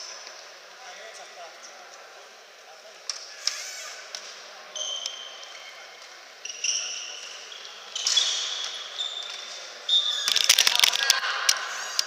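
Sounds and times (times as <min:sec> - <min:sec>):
shoes squeaking on floor: 0:04.8 - 0:05.8, 0:06.4 - 0:10.4.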